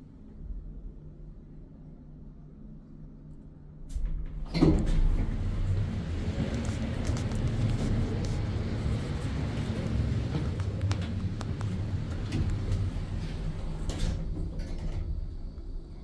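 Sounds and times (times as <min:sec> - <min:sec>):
station hall rumble and hum: 0:00.0 - 0:16.0
elevator doors sliding open: 0:03.9 - 0:16.0.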